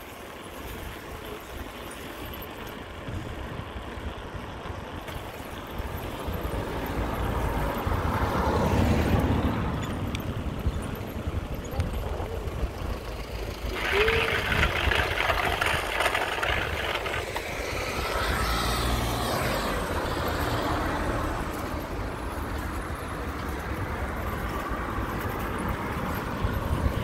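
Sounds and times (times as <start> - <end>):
bicycle tyre and road noise: 0.0 - 27.0
rattly rush: 0.0 - 27.0
wind buffeting microphone: 8.8 - 20.4, 22.6 - 27.0.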